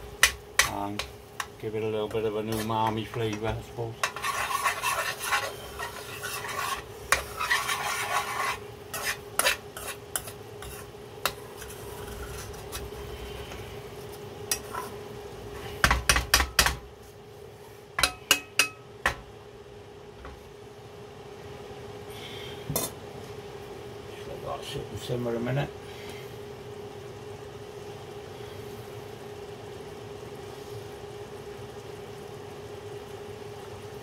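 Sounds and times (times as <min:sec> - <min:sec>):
faint steady hum: 0:00.0 - 0:34.0
spoon knocking on pan: 0:00.2 - 0:04.2, 0:15.8 - 0:16.8, 0:18.0 - 0:19.3
spoon scraping through thick sauce: 0:04.0 - 0:13.0.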